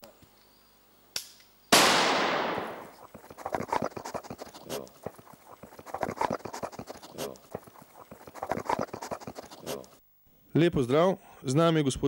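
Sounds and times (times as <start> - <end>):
loud gunshot echoing: 1.7 - 2.9.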